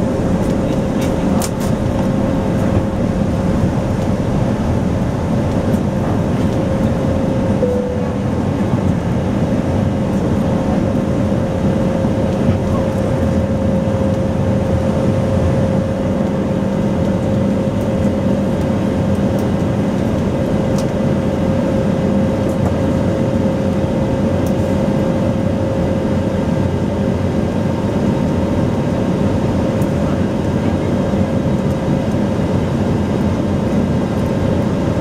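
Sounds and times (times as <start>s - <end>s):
airplane cabin rumble: 0.0s - 35.0s
constant hum: 0.0s - 35.0s
high steady tone: 7.6s - 9.0s.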